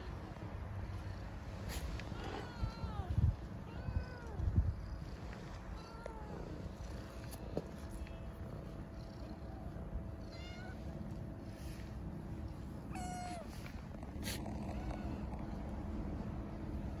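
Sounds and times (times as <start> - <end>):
low rumble near microphone: 0.0 - 17.0
kittens meowing: 2.1 - 6.6, 9.2 - 10.9, 12.8 - 15.7.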